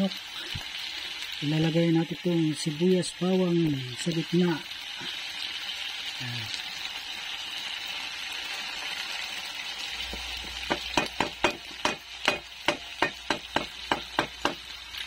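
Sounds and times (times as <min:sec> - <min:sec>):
chicken sizzling in a pan: 0:00.0 - 0:15.0
utensil knocking in a pan: 0:10.1 - 0:14.7.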